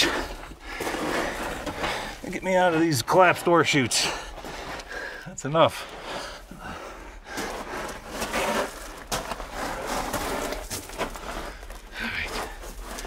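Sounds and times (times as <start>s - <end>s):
footsteps crunching on gravel: 5.7s - 13.0s.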